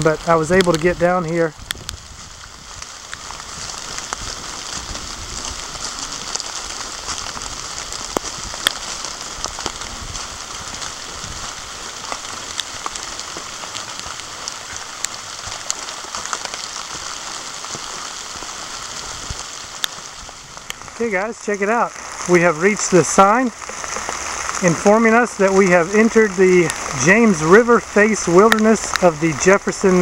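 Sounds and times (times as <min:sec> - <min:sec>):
sharp ticks of raindrops: 0:00.0 - 0:30.0
steady rain in woodland: 0:00.0 - 0:30.0.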